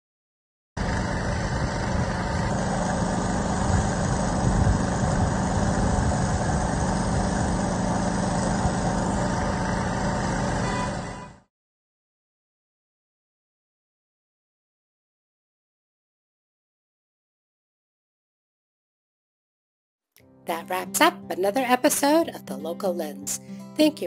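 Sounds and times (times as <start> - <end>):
engine humming steadily: 0.8 - 11.5.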